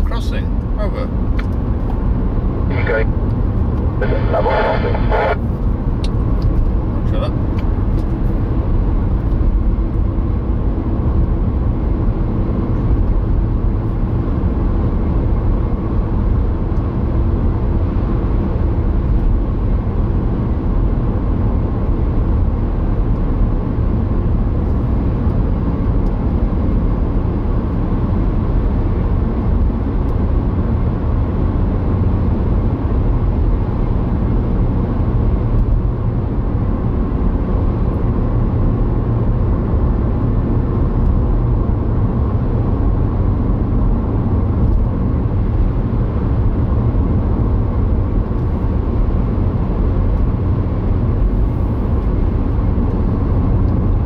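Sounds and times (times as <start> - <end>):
car road and engine rumble: 0.0 - 54.0
faint steady hum: 3.9 - 5.5.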